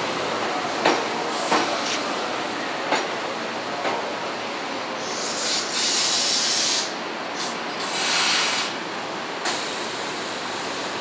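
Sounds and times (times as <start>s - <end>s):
train compressed air hissing: 4.9s - 11.0s.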